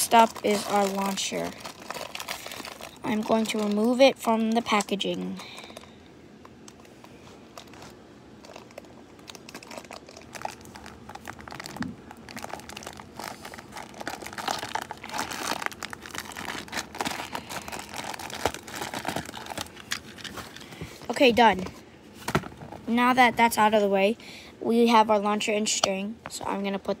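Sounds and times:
plastic packaging crinkling: 0.0 - 5.9, 6.5 - 21.7.

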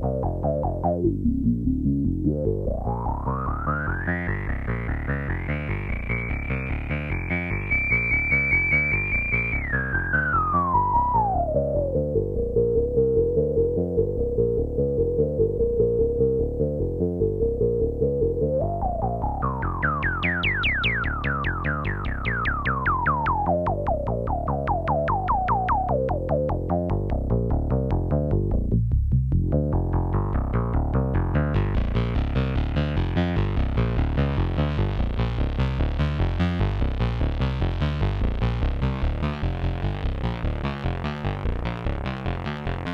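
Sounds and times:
sequenced analog synthesizer notes: 0.0 - 42.9.

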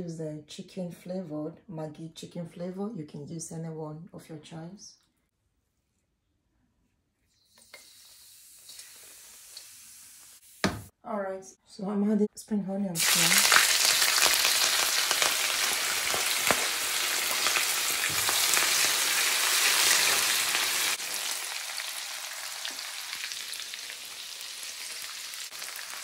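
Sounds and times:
onions sizzling in hot oil: 7.9 - 10.7, 13.0 - 26.0.

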